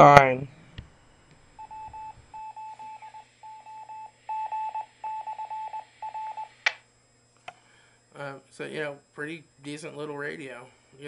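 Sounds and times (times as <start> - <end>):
morse code beeping from radio: 1.6 - 6.5.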